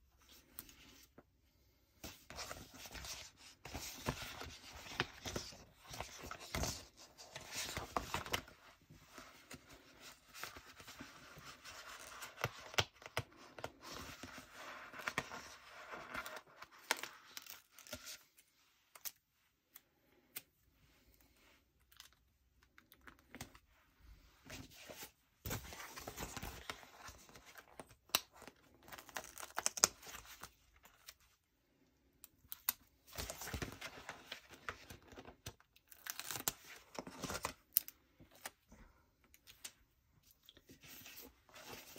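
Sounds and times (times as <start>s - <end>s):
paper rustling and crinkling: 2.0s - 18.3s, 24.4s - 31.2s.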